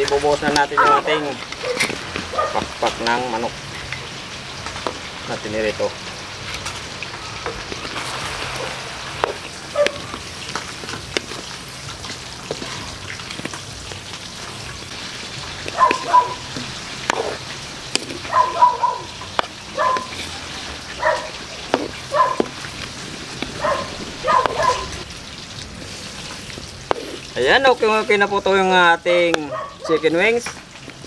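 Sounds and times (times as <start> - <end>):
sauce bubbling and sizzling in a wok: 0.0 - 31.0
dog yapping: 0.7 - 2.7, 9.7 - 10.2, 15.6 - 16.5, 17.1 - 17.4, 18.2 - 22.6, 23.6 - 25.0, 29.4 - 30.0.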